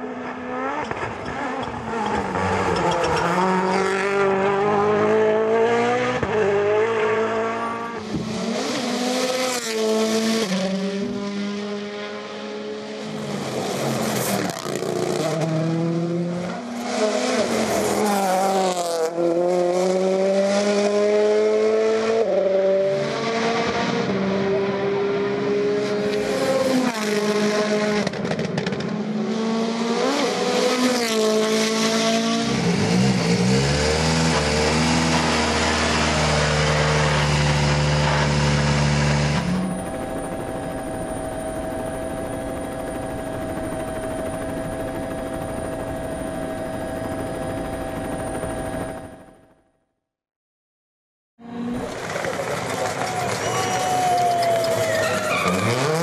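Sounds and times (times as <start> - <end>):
rally car engines revving: 0.0 - 39.8, 54.3 - 56.0
tyre squeal: 52.7 - 56.0.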